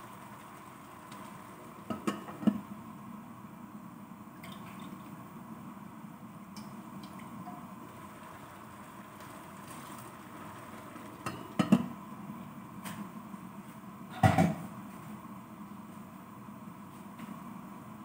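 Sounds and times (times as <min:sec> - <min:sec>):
pot simmering: 0:00.0 - 0:12.8.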